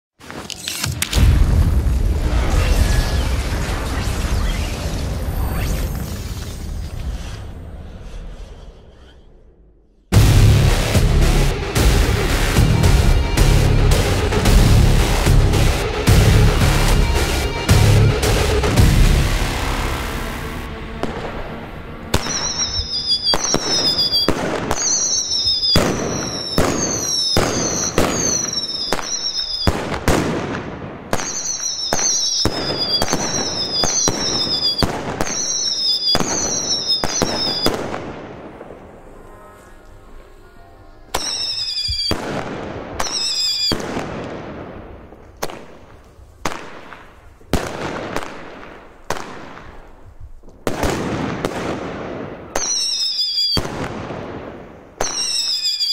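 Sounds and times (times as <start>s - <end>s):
firework bangs: 0.2s - 40.2s, 40.8s - 55.9s
firework whistles: 2.1s - 10.1s, 20.0s - 30.4s, 31.1s - 44.3s, 52.5s - 54.2s, 55.0s - 55.9s.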